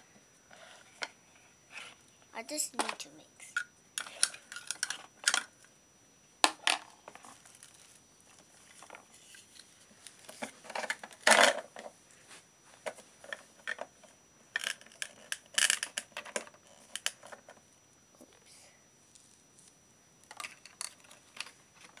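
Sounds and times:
plastic toy pieces clattering: 14.6 - 17.4.

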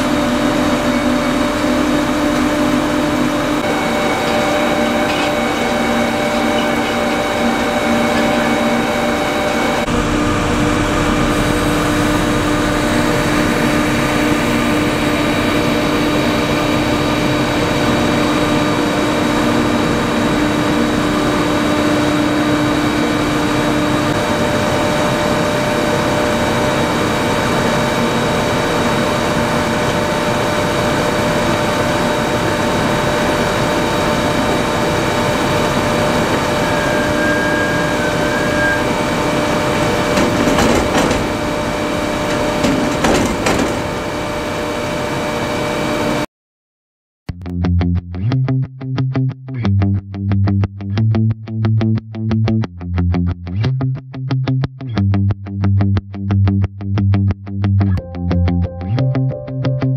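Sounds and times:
diesel engines running: 0.0 - 46.2
conveyors and blower running: 0.0 - 46.3.

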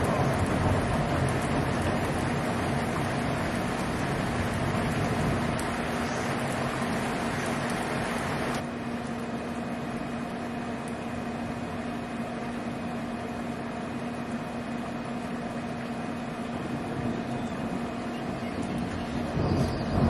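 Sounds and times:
thunder rumbling: 0.0 - 8.6, 16.6 - 20.0.

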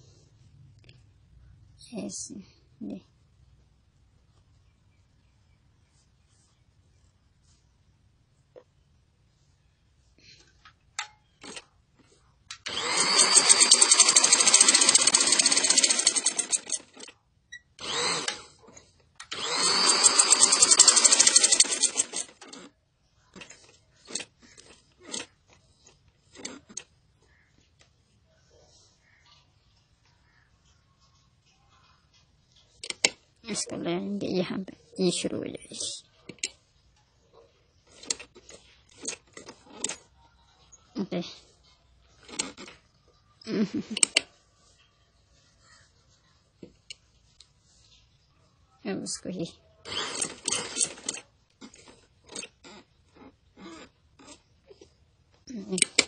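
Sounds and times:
sewing machine stitching: 11.4 - 11.7, 12.6 - 17.2, 17.8 - 26.9, 37.8 - 40.1, 42.2 - 42.9, 49.8 - 54.9.

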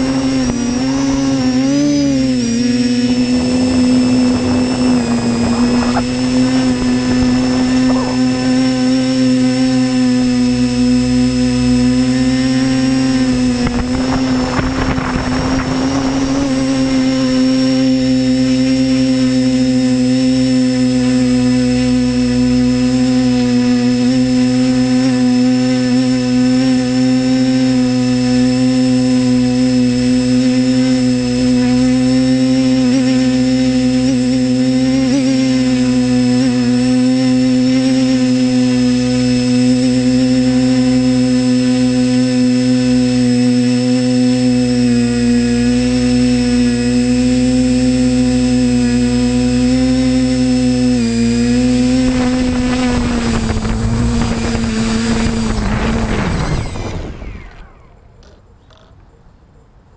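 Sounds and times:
rush of noise: 0.0 - 18.3
drone propellers whining: 0.0 - 59.1.

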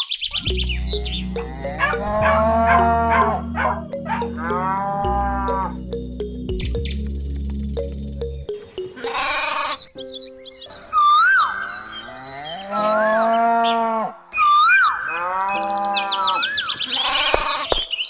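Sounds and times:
background music: 0.4 - 13.2
cattle mooing: 1.3 - 5.8, 11.8 - 14.1.

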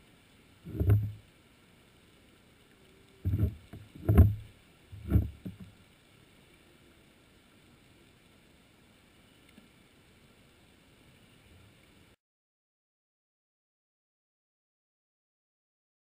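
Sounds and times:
dull underwater thumps: 0.7 - 1.2, 3.2 - 5.7.

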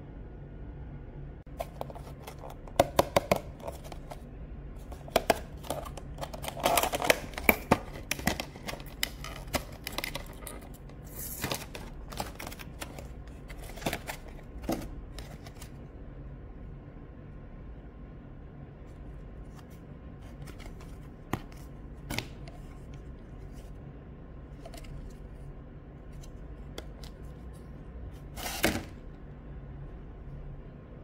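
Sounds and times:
packaging rustle: 4.9 - 15.7.

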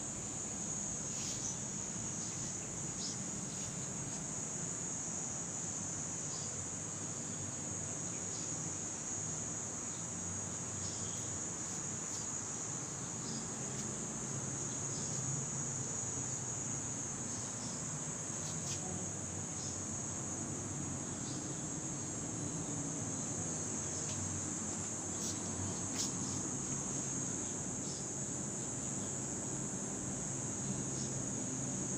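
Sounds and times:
insects trilling: 0.0 - 31.9.

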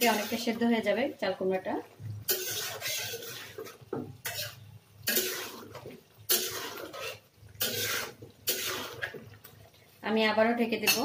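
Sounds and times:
spatula scraping metal pan: 0.0 - 0.6, 2.3 - 9.2.

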